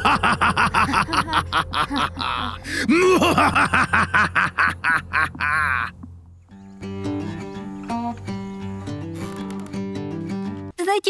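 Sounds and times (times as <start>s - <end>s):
cartoon villain evil laugh: 0.0s - 6.0s
low steady hum: 0.0s - 8.0s.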